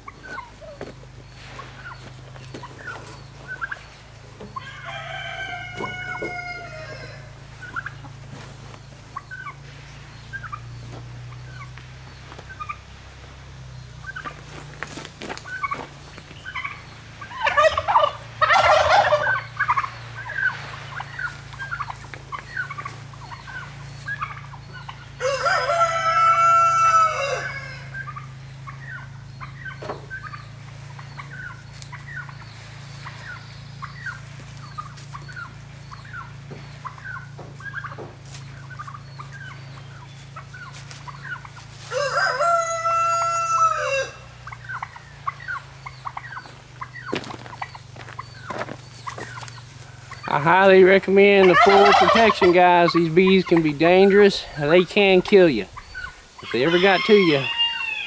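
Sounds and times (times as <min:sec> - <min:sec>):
chickens clucking: 0:00.0 - 0:58.0
rooster crowing: 0:04.4 - 0:07.6, 0:17.3 - 0:20.5, 0:24.6 - 0:29.2, 0:41.8 - 0:45.6, 0:56.4 - 0:58.0.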